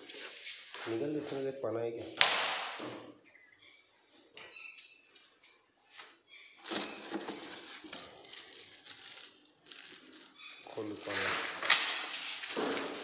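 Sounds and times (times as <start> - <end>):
plastic bag crinkling: 6.6 - 11.7.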